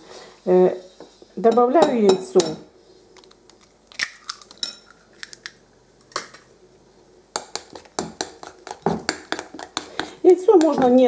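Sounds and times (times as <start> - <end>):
metal spoon clinking glass bowl: 4.6 - 5.0.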